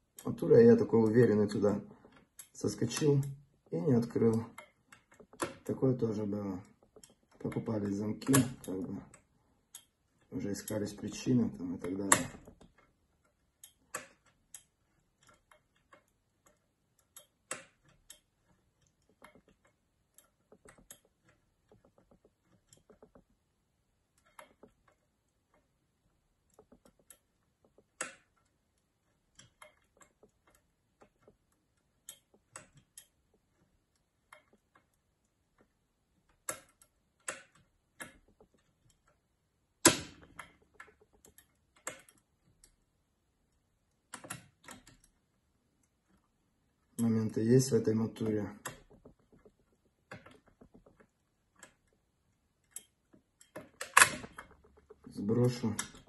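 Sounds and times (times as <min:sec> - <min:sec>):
small metal clicks in lock: 0:13.6 - 0:23.3, 0:26.5 - 0:28.5, 0:36.3 - 0:39.2, 0:39.8 - 0:42.2, 0:44.1 - 0:45.1, 0:52.6 - 0:56.0.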